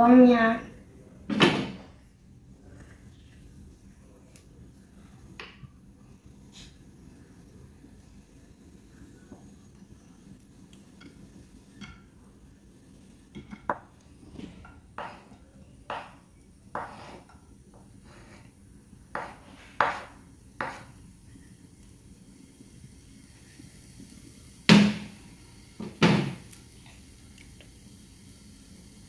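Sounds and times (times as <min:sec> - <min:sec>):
onions frying in hot oil: 0:03.8 - 0:29.0
utensil scraping frying pan: 0:16.0 - 0:18.5, 0:19.2 - 0:21.0.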